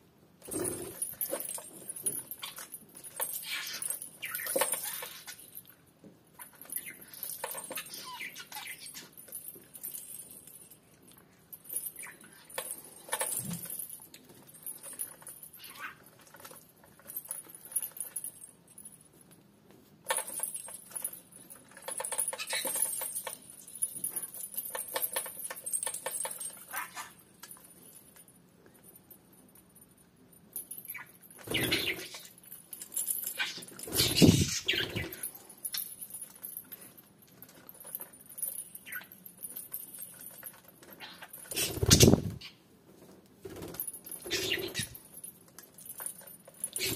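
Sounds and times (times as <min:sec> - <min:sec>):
small metal bells jingling: 0:00.4 - 0:42.6, 0:43.5 - 0:46.9.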